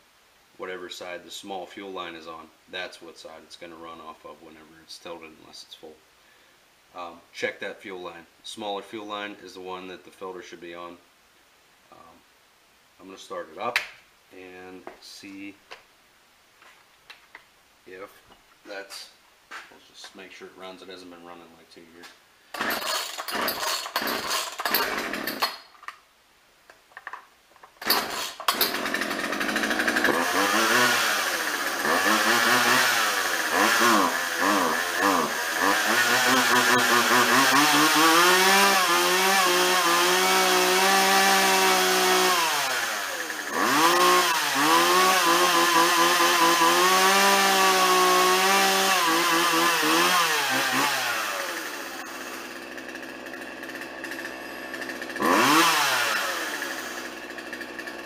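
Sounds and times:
chainsaw revving and idling: 22.5 - 25.6, 27.8 - 58.0.

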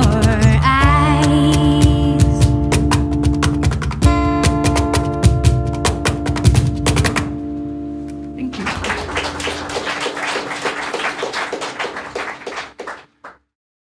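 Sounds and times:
guitar chord ringing: 4.1 - 9.6
audience clapping: 8.4 - 13.5.

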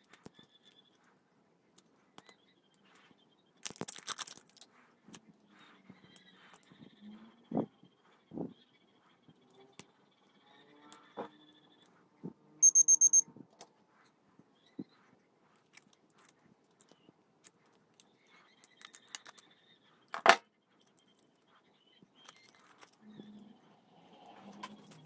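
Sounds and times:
foil wrapping crinkling: 3.6 - 4.6
high chirping beeps: 12.6 - 13.2.

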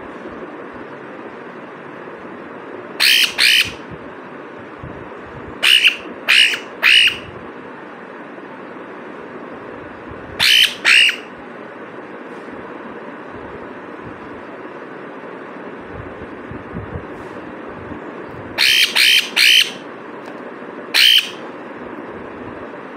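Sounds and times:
parrot squawking: 3.0 - 3.8, 5.6 - 7.3, 10.4 - 11.4, 18.6 - 19.9, 20.9 - 21.5.

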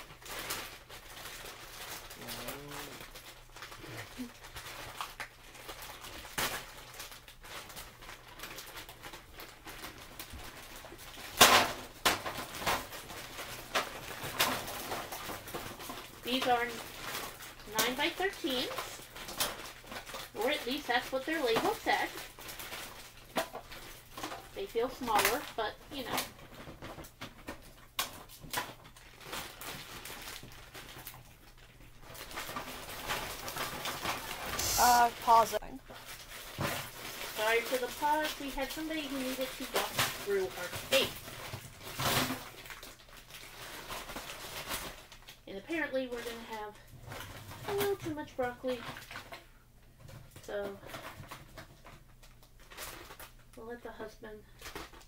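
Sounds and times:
plastic bag crinkling: 0.0 - 55.0
frozen florets clattering into foil pan: 3.0 - 31.4, 32.0 - 53.6
frozen vegetables spilling into foil pans: 32.0 - 49.3.

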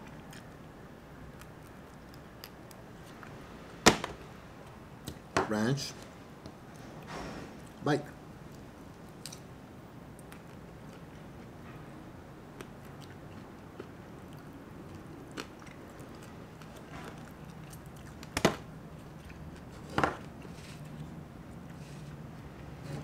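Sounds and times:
person chewing crunchy food: 12.5 - 22.0.

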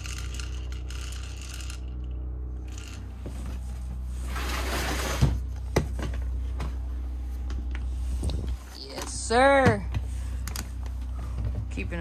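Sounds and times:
low hum: 0.0 - 12.0
rustling sliding noise: 3.3 - 5.4.

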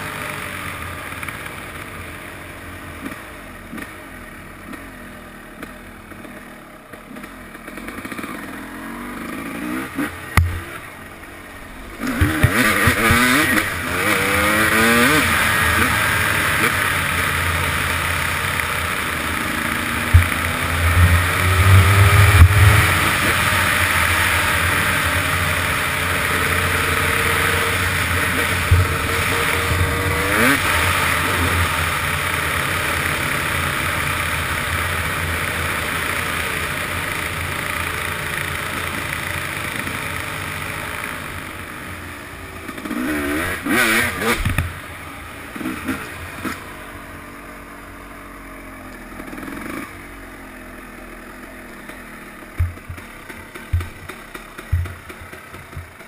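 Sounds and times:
dirt bike engine: 0.0 - 56.0
engine throttle blips: 18.5 - 32.4, 52.4 - 56.0.

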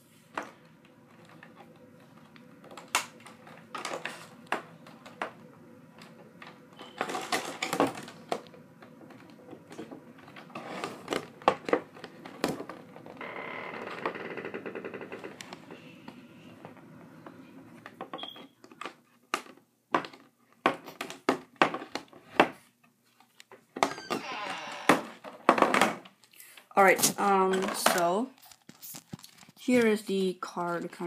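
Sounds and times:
plastic crinkling: 28.0 - 30.0.

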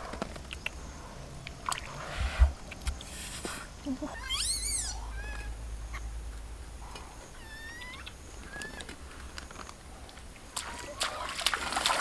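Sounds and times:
high animal chirps: 4.0 - 6.1, 7.3 - 8.8.

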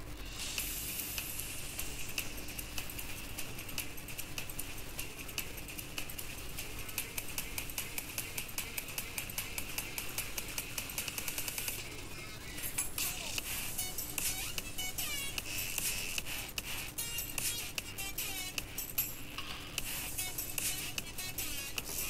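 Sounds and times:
steady hiss: 0.0 - 11.9, 12.5 - 22.0
low hum: 0.0 - 22.0.

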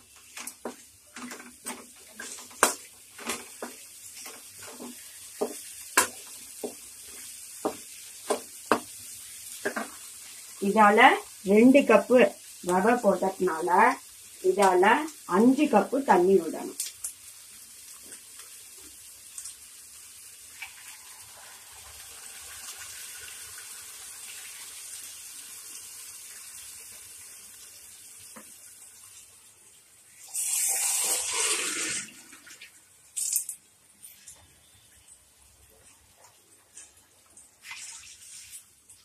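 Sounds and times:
water pouring into pan: 19.4 - 27.9, 30.1 - 33.5, 37.6 - 39.0.

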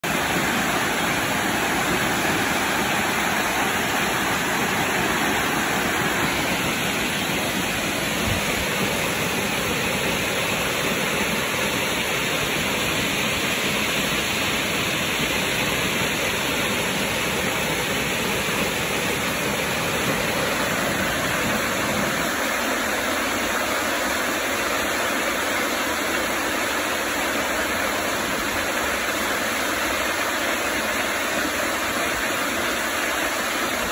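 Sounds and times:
waterfall rushing: 0.0 - 33.9.

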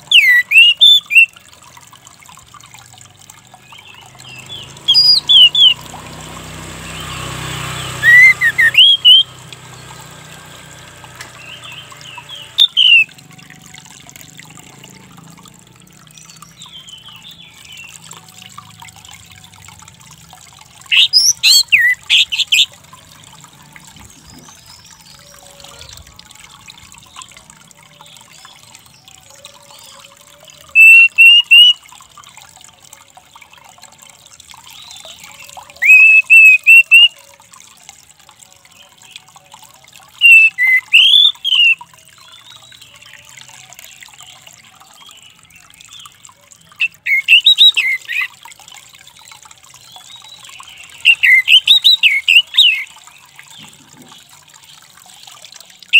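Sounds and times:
thrush whistling calls: 0.0 - 1.4, 4.3 - 6.0, 6.9 - 9.4, 11.6 - 13.1, 20.8 - 22.7, 30.7 - 31.8, 35.8 - 37.2, 40.2 - 41.8, 46.8 - 48.3, 51.0 - 52.9.

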